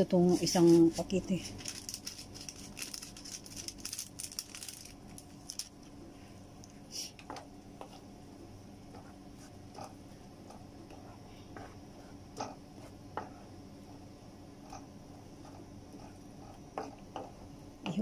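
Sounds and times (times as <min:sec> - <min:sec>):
faint steady hum: 0:00.0 - 0:18.0
seasoning sachet crinkling: 0:00.4 - 0:05.9
spatula tapping and scraping pan: 0:09.7 - 0:13.5, 0:16.5 - 0:17.4.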